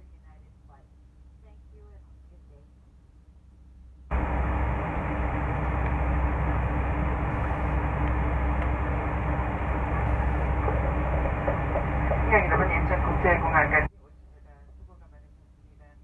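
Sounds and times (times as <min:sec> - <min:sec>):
vehicle rumble: 0:04.1 - 0:13.9.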